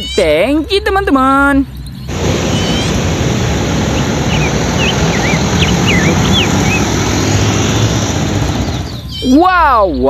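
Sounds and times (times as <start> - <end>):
truck driving past: 2.1 - 9.2.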